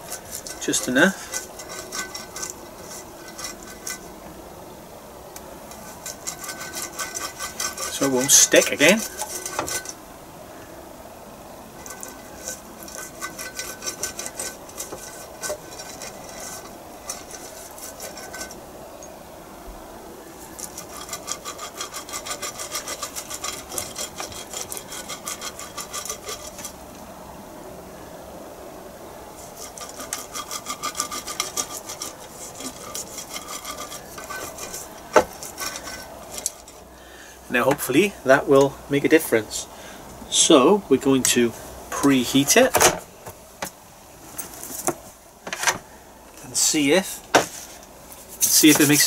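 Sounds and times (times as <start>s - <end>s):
pastry brush rubbing waffle plate: 0.0s - 4.2s, 5.7s - 10.0s, 11.8s - 18.6s, 20.4s - 26.8s, 29.3s - 36.9s, 47.5s - 49.0s.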